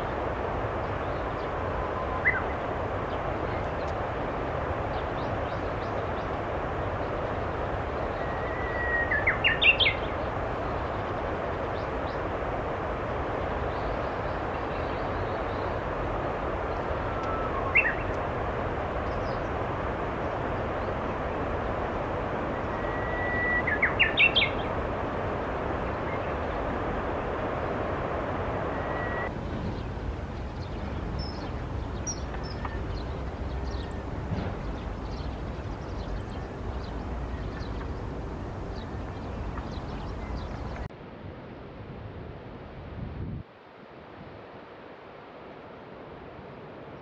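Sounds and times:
steady background noise: 0.0s - 47.0s
bird singing whistled song: 1.9s - 2.6s, 8.1s - 10.1s, 17.0s - 18.2s, 22.6s - 24.7s, 28.7s - 29.9s.

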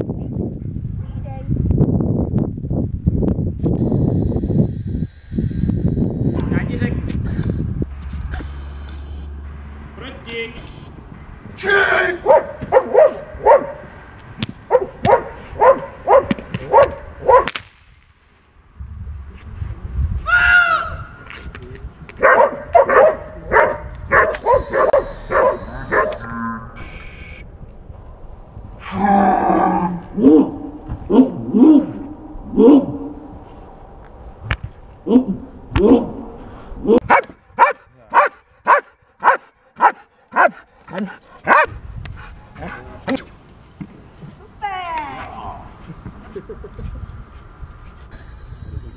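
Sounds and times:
dog barking: 12.2s - 13.9s, 14.7s - 17.5s, 22.2s - 26.2s, 37.0s - 41.8s
stick cracks: 17.4s - 18.1s.

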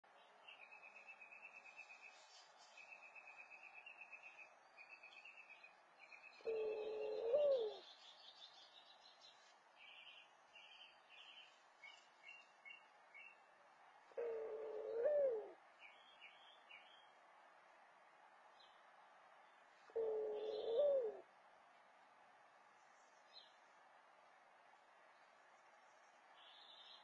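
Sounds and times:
small birds chirping: 0.1s - 13.6s, 15.6s - 17.3s, 25.0s - 27.0s
dove cooing: 6.4s - 7.9s, 14.1s - 15.6s, 19.9s - 21.3s.

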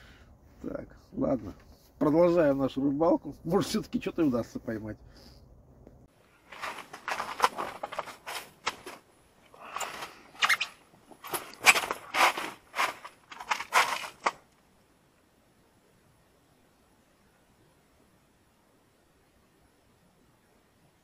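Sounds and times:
clothing rustling: 6.2s - 14.4s
boots crunching in snow: 6.3s - 9.0s, 11.2s - 14.3s.

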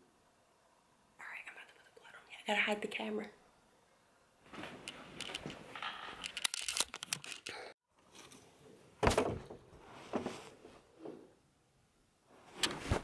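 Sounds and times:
camera handling rustling: 6.2s - 7.5s.

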